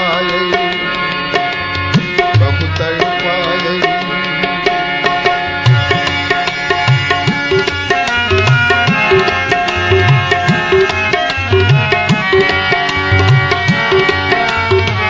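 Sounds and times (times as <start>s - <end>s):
held melodic instrumental line: 0.0s - 15.0s
tabla rhythm: 0.0s - 15.0s.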